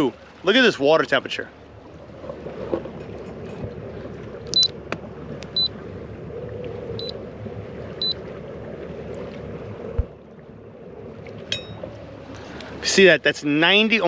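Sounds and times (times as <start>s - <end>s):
boat low noise: 0.0s - 14.0s.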